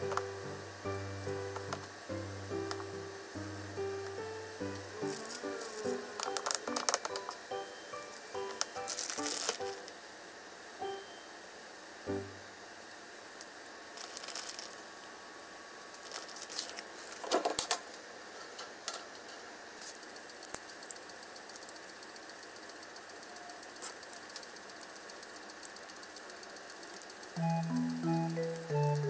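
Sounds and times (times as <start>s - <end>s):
rustling and crinkling: 8.9s - 9.6s, 14.0s - 14.8s, 16.0s - 17.7s.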